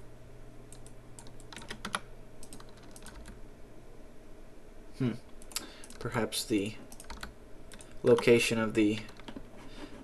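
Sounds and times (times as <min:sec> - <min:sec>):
low steady hum: 0:00.0 - 0:10.0
keyboard keys clicking: 0:00.7 - 0:03.4, 0:06.9 - 0:08.4, 0:09.0 - 0:09.5.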